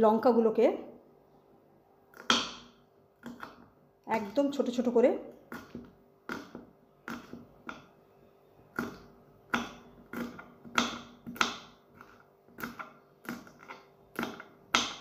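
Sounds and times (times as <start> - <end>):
knife chopping on wooden board: 2.2 - 3.6, 5.5 - 7.9, 8.7 - 15.0.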